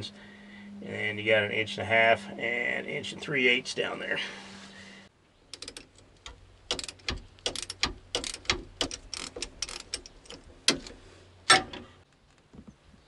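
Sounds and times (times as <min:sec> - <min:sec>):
metallic clicks from hand tools: 0:05.5 - 0:11.0.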